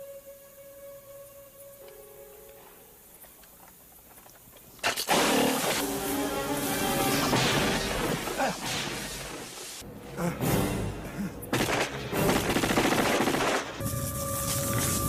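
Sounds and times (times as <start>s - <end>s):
film score music: 0.0s - 3.2s, 5.2s - 8.6s, 9.8s - 15.0s
automatic gunfire: 11.6s - 13.8s.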